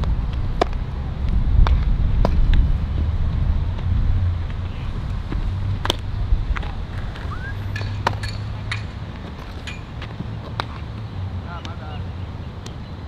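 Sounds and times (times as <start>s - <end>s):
wind buffeting microphone: 0.0s - 10.4s.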